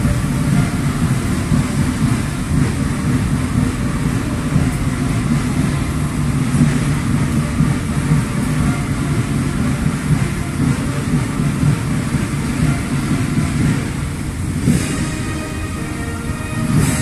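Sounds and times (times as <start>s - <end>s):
heavy vehicles rumbling past: 0.0s - 17.0s.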